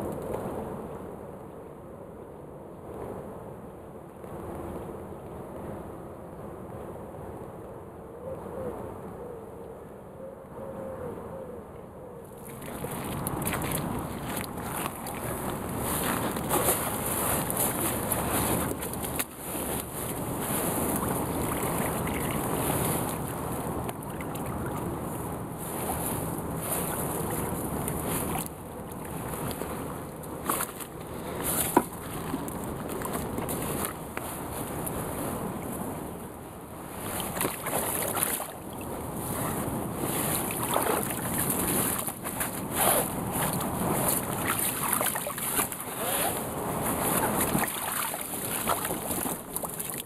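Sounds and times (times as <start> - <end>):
water sloshing and splashing: 12.3 - 35.8, 36.9 - 50.0
wind noise on microphone: 12.4 - 50.0.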